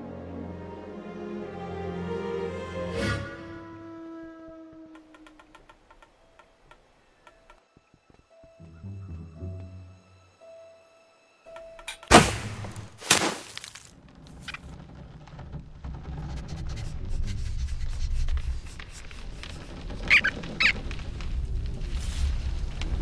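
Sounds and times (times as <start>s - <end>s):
low rumble: 14.0s - 23.0s
short squeaks: 19.2s - 21.2s.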